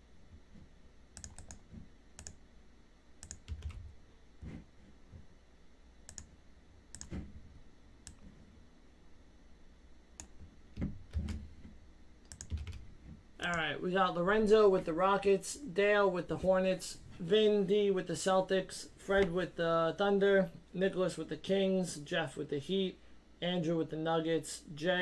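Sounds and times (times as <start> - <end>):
keyboard and mouse clicking: 1.2 - 2.4, 3.2 - 3.9, 6.1 - 6.3, 6.9 - 7.2, 10.2 - 11.4, 12.2 - 13.5.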